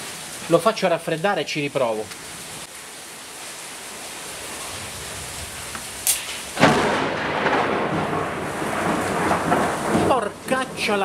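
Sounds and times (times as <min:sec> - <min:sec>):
heavy rain hissing: 0:00.0 - 0:11.0
thunderclap rumbling: 0:04.5 - 0:11.0
sharp snap: 0:06.0 - 0:06.4.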